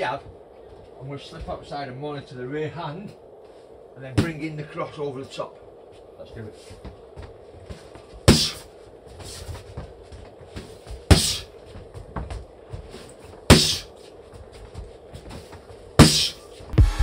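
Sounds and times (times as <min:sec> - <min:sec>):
boxing glove punches on focus mitt: 0:08.3 - 0:08.6, 0:11.1 - 0:11.5, 0:13.5 - 0:13.9, 0:16.0 - 0:16.4.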